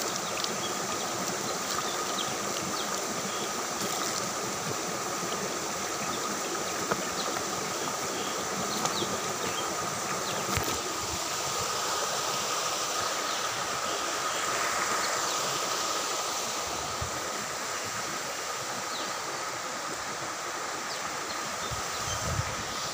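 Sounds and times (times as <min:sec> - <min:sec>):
stream rushing over stones: 0:00.0 - 0:22.9.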